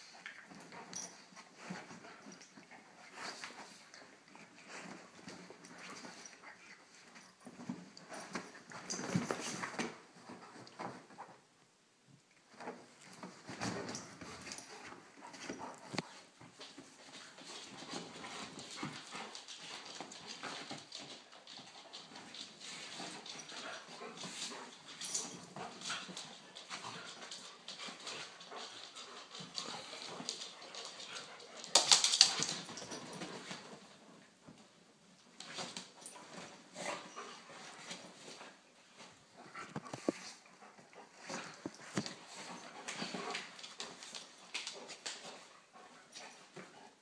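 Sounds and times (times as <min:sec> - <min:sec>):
dogs scuffling on cushions: 0:12.5 - 0:34.2.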